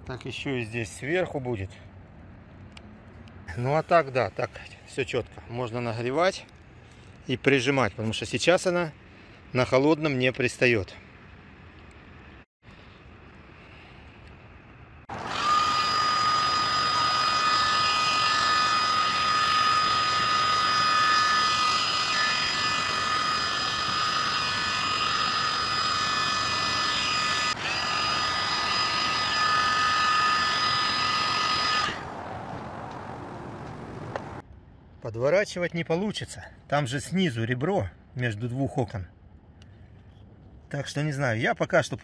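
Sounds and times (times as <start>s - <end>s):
heat gun fan whining: 15.1s - 33.7s.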